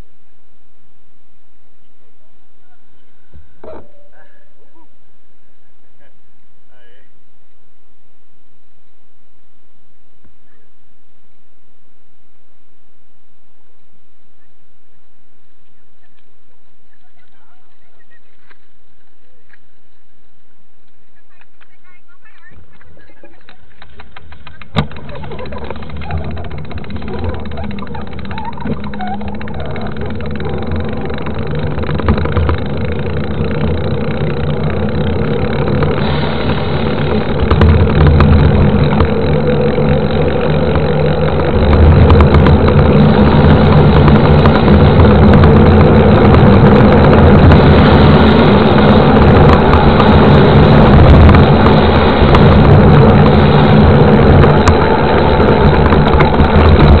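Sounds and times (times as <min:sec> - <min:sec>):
bike tyres rolling on road: 0:00.0 - 0:57.0
wind rushing over microphone: 0:24.4 - 0:57.0.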